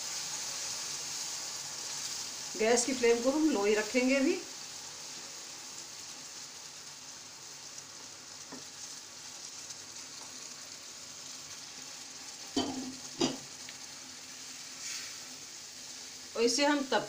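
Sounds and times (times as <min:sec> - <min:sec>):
food sizzling in a frying pan: 0:00.0 - 0:17.0
spatula stirring in a pan: 0:07.6 - 0:16.3.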